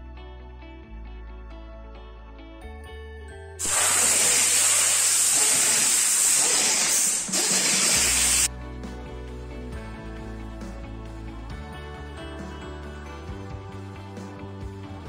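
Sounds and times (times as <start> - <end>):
compressed air hissing: 3.6 - 8.5.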